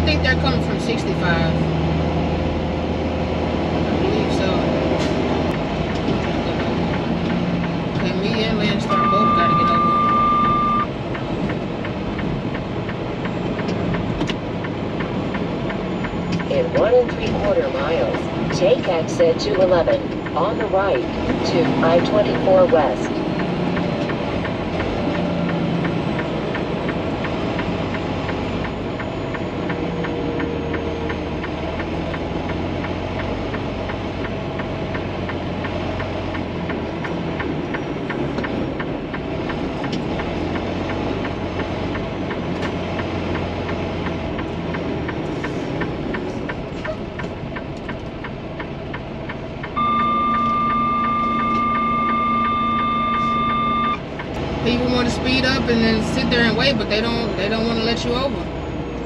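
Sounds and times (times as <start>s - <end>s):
diesel truck engine idling: 0.0s - 59.0s
regular ticking: 0.0s - 59.0s
loud horn-like tone: 8.9s - 10.9s, 49.8s - 54.0s.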